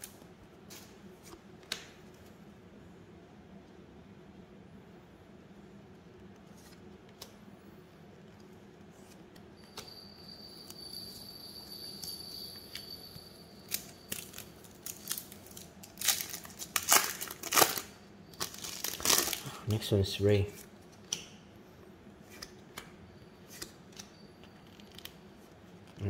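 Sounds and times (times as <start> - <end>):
plastic wrapper crinkling and tearing: 13.7 - 19.5.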